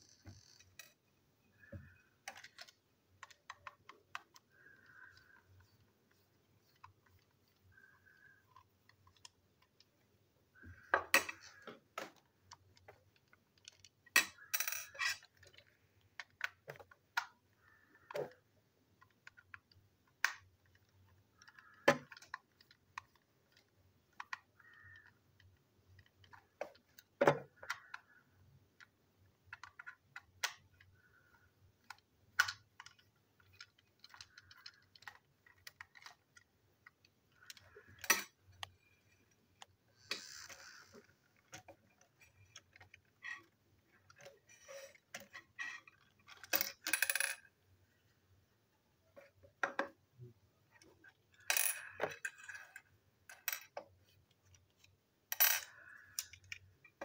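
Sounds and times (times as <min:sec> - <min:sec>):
plastic toy clicks and taps: 0:19.0 - 0:28.2, 0:31.8 - 0:38.8.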